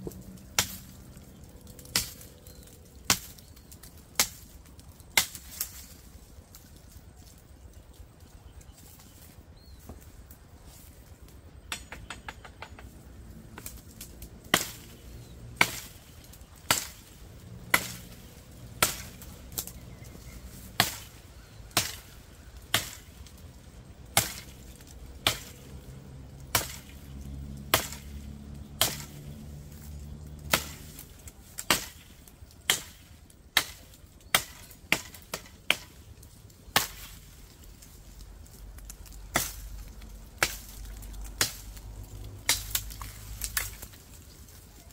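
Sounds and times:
knife chopping through brush: 5.1 - 5.9, 14.5 - 23.2, 24.1 - 25.8, 26.5 - 27.1, 27.7 - 29.4, 30.3 - 36.0, 36.7 - 37.3, 38.8 - 44.0.

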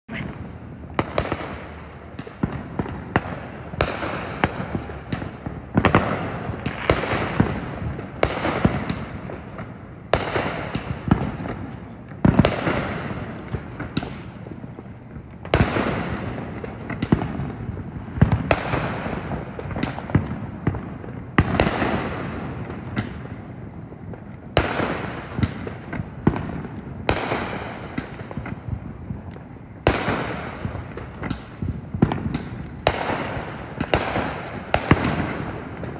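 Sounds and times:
firework bangs: 0.1 - 35.9
crackling firework pops: 0.2 - 35.9.

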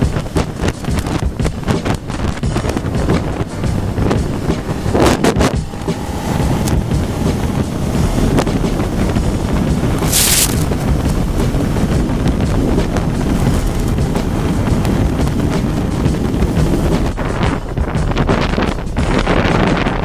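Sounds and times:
motorcycle engine running: 0.0 - 20.0
wind noise on microphone: 0.0 - 20.0
brief hiss: 10.0 - 10.7.

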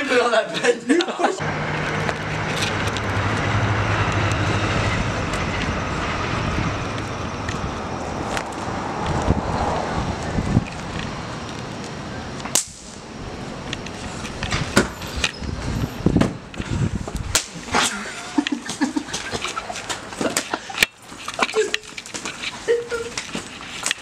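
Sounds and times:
wind buffeting microphone: 1.4 - 17.8.

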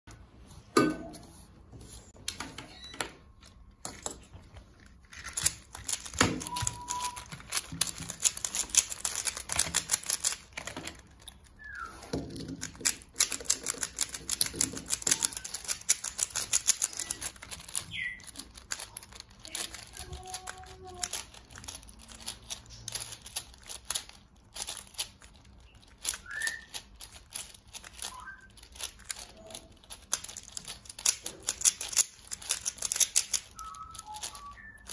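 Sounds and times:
puzzle cube plastic clicks: 3.3 - 34.9.

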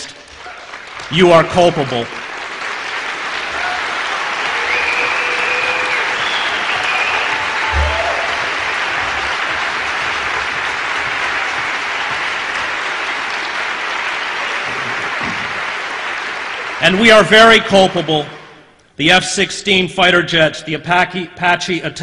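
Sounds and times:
audience applauding: 0.0 - 17.6.

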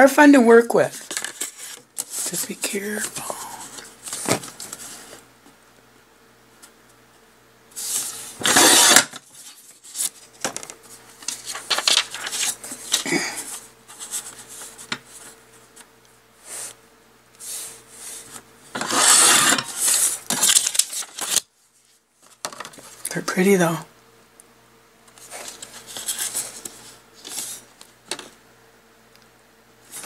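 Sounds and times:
paper rustling: 0.8 - 5.2, 7.8 - 15.4, 17.5 - 23.0, 25.1 - 28.3
paper trimmer blade rasping: 18.8 - 20.0.

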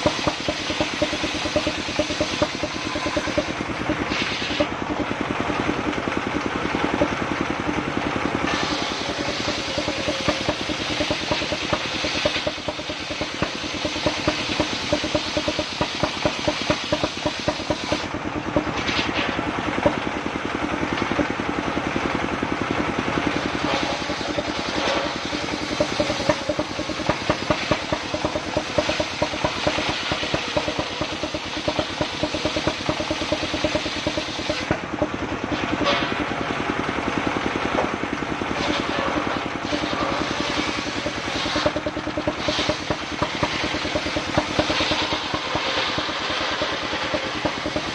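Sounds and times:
saw blade cutting log: 0.0 - 4.8, 8.5 - 20.0, 23.3 - 34.8, 38.6 - 47.9
diesel engine running: 0.0 - 47.9.

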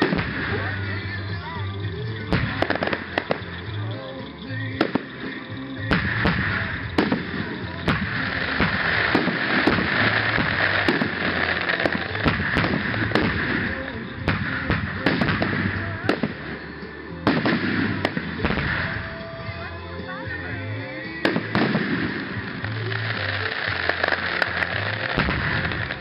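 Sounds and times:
firework bangs: 0.0 - 26.0.

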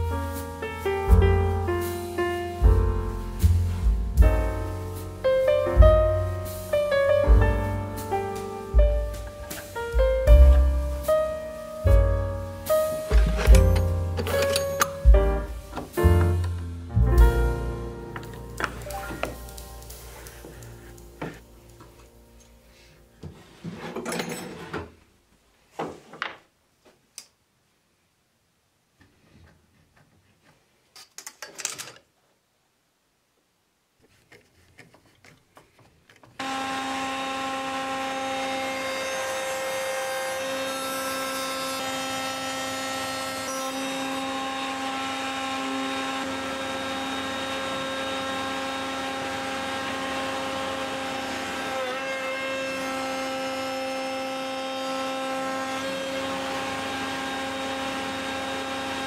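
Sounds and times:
electric power tool whining: 36.4 - 59.0.

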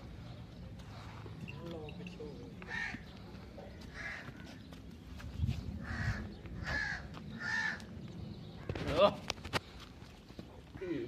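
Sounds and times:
crow cawing: 2.6 - 3.1, 3.9 - 4.5, 5.8 - 7.9.

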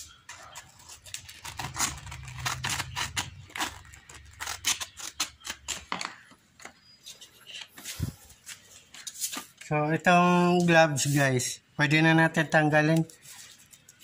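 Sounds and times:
stiff paper rustling: 0.3 - 9.7
scissors snipping sandpaper: 0.9 - 5.9.

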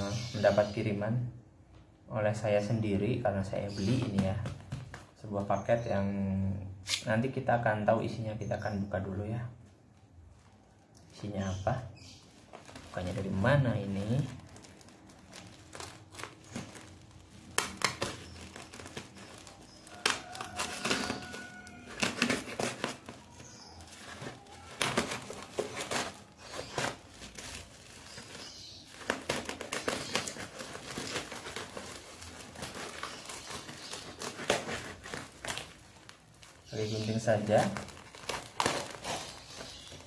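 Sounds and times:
bubble wrap crinkling and tearing: 9.8 - 40.0.

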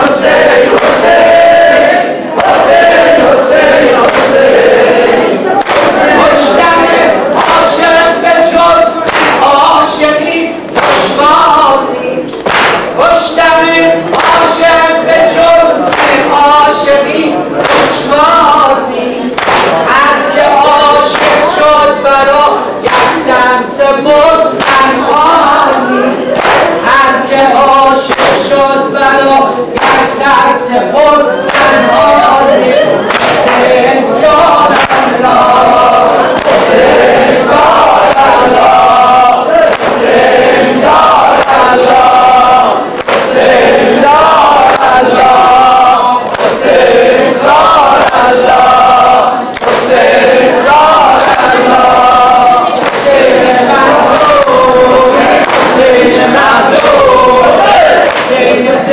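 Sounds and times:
man chanting a lament: 5.4 - 36.4
hands slapping chest: 9.1 - 9.4, 12.4 - 12.9, 19.4 - 19.8, 26.4 - 26.7, 39.6 - 40.0, 43.0 - 43.4, 58.0 - 58.4.

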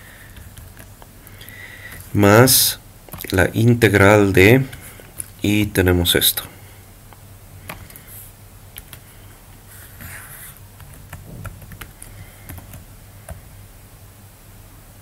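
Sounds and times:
low steady hum: 0.0 - 15.0
keyboard and mouse clicks: 7.7 - 8.0, 8.8 - 9.0.

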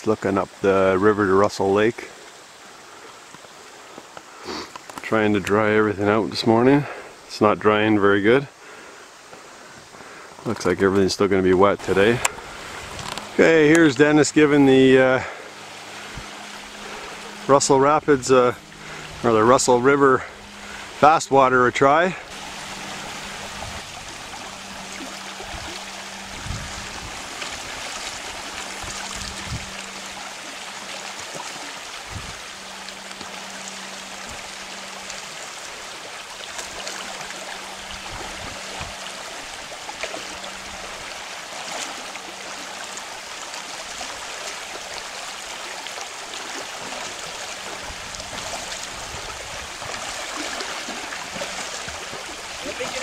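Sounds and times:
river rapids rushing: 11.6 - 53.0.

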